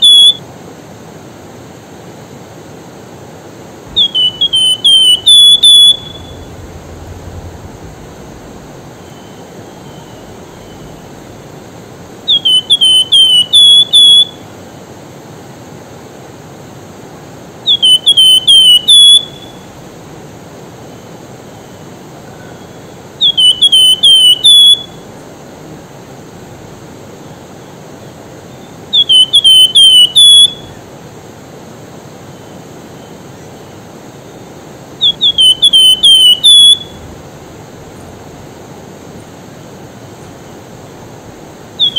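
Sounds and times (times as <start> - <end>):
bird singing falling whistles: 0.0 - 0.4, 3.9 - 14.4, 17.6 - 20.0, 22.5 - 25.1, 28.6 - 30.8, 35.0 - 38.6
river rushing: 0.6 - 17.8.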